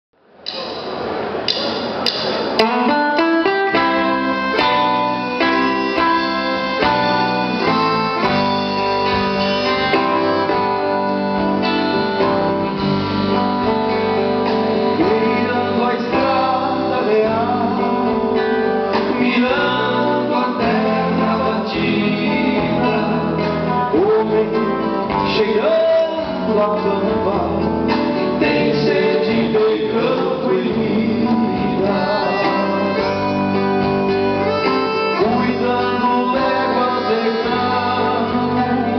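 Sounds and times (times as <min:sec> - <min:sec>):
drums: 0:00.2 - 0:38.9
acoustic and electric guitars: 0:00.6 - 0:38.9
accordion: 0:02.6 - 0:26.0, 0:26.6 - 0:38.9
man singing into a microphone: 0:14.8 - 0:38.9.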